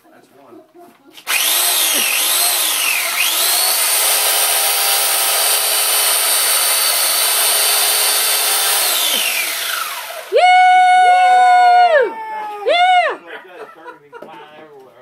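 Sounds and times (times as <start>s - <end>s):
electric chainsaw whining: 1.2s - 12.0s.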